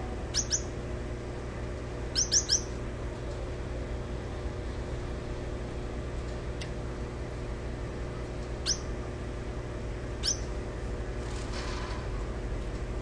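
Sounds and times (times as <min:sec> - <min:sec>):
steady low hum: 0:00.0 - 0:13.0
finch high-pitched calls: 0:00.3 - 0:00.7, 0:02.1 - 0:02.8, 0:08.6 - 0:08.9, 0:10.2 - 0:10.5.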